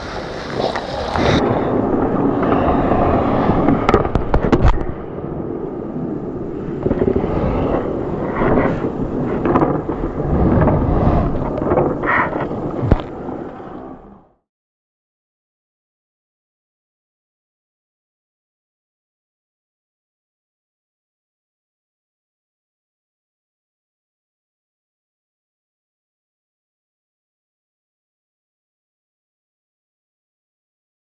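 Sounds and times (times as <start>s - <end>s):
skates scraping on ice: 0.0s - 5.2s, 6.0s - 14.2s.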